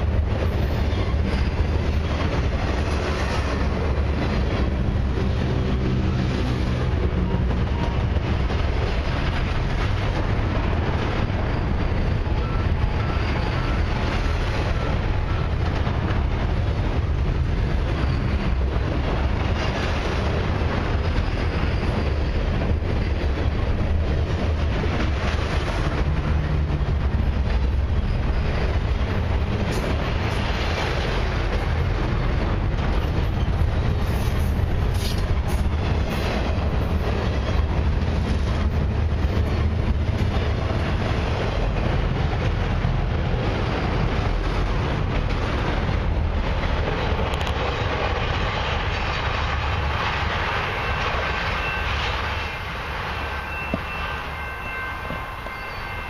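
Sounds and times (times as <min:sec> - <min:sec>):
train wheels rolling on rails: 0:00.0 - 0:56.0
high ticks from wheels: 0:47.2 - 0:47.6.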